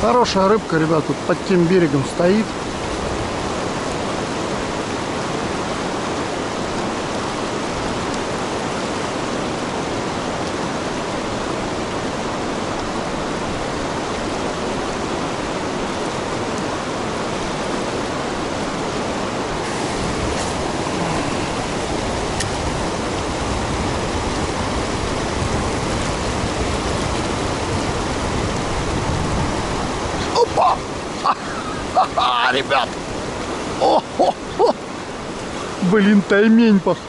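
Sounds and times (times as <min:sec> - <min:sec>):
fast-flowing river water: 0:00.0 - 0:37.0.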